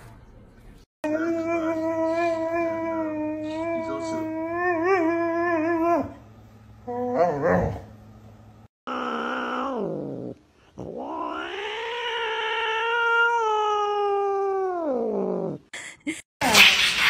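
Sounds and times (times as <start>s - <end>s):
cat yowling: 8.9s - 15.6s.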